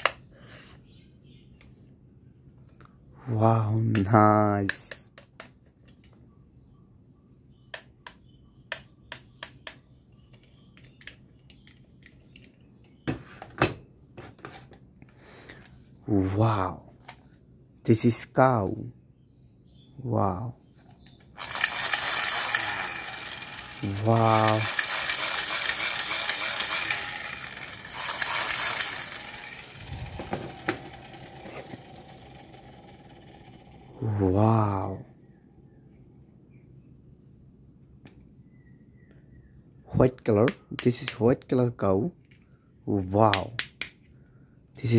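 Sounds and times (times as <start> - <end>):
plastic toys clicking: 21.2 - 33.6
toy gun gear rattle: 21.2 - 34.0.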